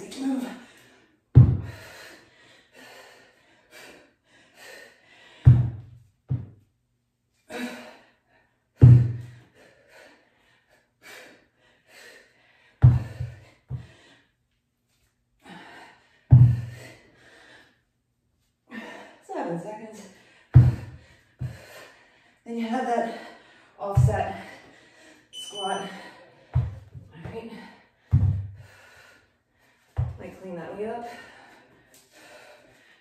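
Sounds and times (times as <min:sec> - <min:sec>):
kettlebell thudding on rubber floor: 0:01.4 - 0:01.8, 0:05.5 - 0:06.6, 0:08.8 - 0:09.3, 0:12.8 - 0:13.8, 0:16.3 - 0:16.8, 0:28.1 - 0:28.6.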